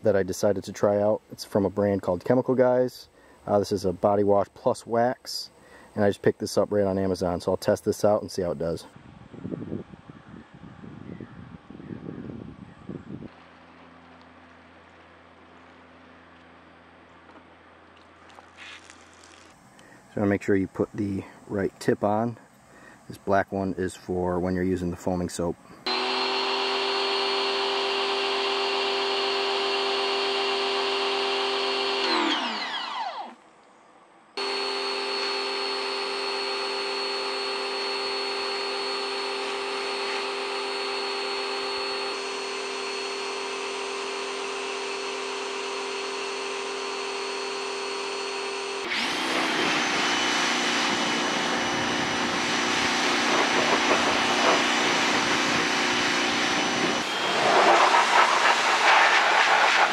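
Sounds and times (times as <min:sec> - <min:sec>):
pressure washer motor whine: 0:25.8 - 0:33.4, 0:34.4 - 0:59.9
high-pressure water spray hiss: 0:52.2 - 0:59.9.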